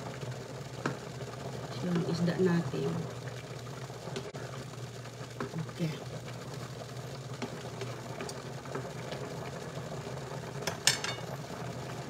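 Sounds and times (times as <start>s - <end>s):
low appliance hum: 0.0s - 12.0s
utensil clicking on pan: 10.6s - 11.3s.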